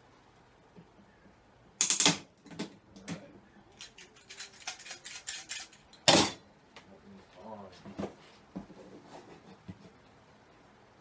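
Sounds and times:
metal tools clicking and rattling: 3.8 - 6.4.

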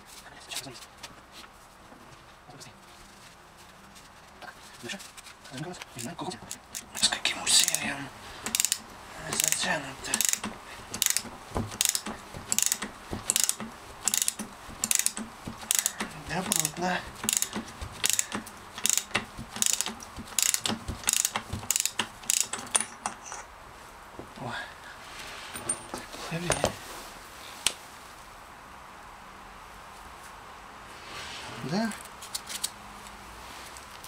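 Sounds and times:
ratchet wrench clicking: 6.5 - 23.4.

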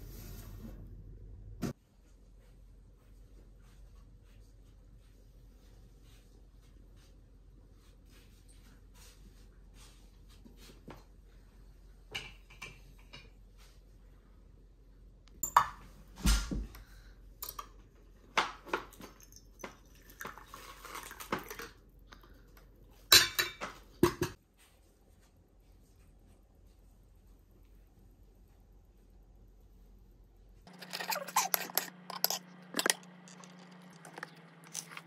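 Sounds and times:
tea pouring into a cup: 19.2 - 21.7
dishes and cutlery clattering: 23.1 - 24.4, 30.7 - 34.9.

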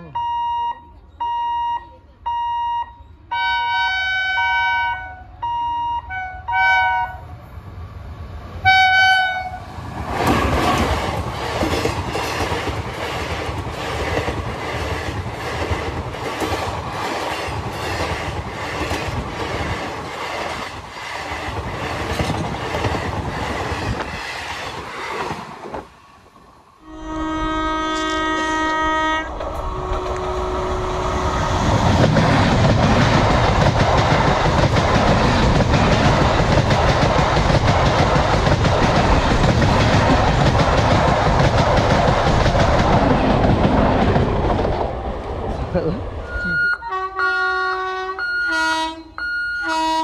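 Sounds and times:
train horn blasts: 3.3 - 7.3, 8.6 - 9.7, 26.8 - 31.4, 46.8 - 50.0
train wheels clattering: 31.4 - 44.9.

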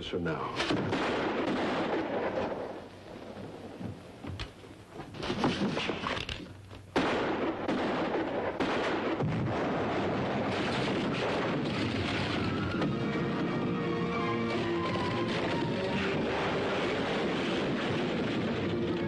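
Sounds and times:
explosion: 7.0 - 13.8, 14.5 - 19.0
roar of blast and falling debris: 14.5 - 19.0.

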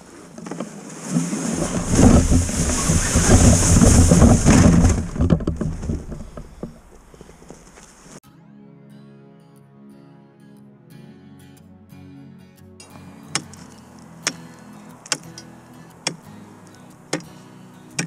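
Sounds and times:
footsteps crunching in snow: 0.0 - 5.2, 5.8 - 8.2
pushing through dry brush: 0.0 - 8.2
wind rumbling on microphone: 1.0 - 8.2.

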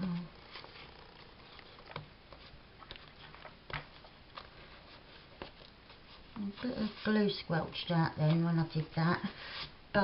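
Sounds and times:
bone folder scraping paper: 4.0 - 7.5, 9.2 - 9.8.

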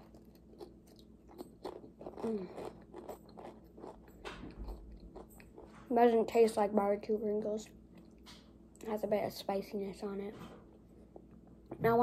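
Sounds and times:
chewing crisp crunches: 0.0 - 5.9.

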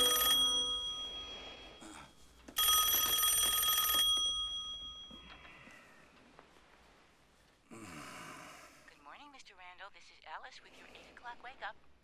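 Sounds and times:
desk telephone ringing: 0.0 - 1.8, 2.5 - 5.7.

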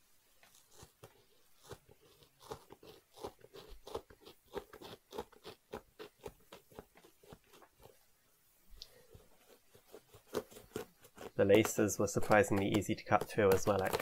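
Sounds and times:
blade cutting with crunching clicks: 0.7 - 7.6, 9.9 - 14.0.

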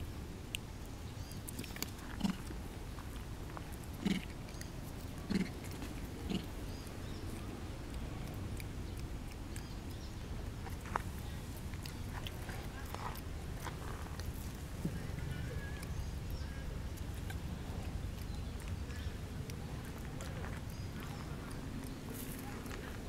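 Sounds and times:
steady low rumble: 0.0 - 23.0
monkeys grunting: 4.0 - 4.3, 5.2 - 6.6.

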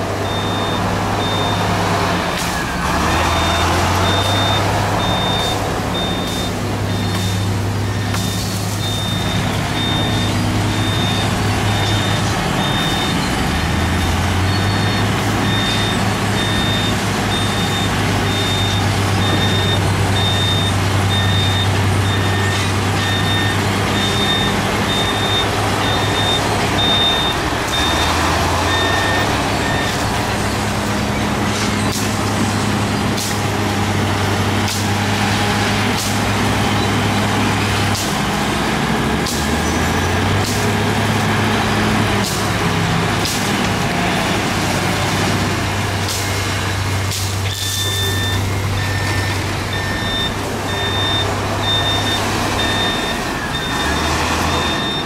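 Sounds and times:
diesel engine running: 0.0 - 55.0
reversing alarm beeping: 0.2 - 1.7, 2.4 - 30.4, 46.2 - 55.0.

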